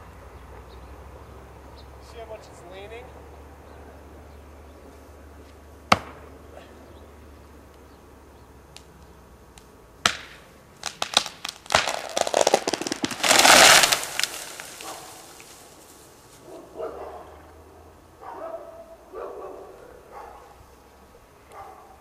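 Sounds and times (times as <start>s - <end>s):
tree trunk cracking: 10.0s - 16.0s
tree crashing to ground: 10.0s - 16.3s.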